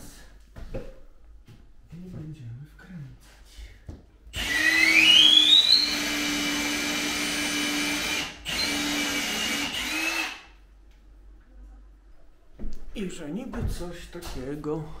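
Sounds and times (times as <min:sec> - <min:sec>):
cordless drill motor whine: 0:04.4 - 0:10.4.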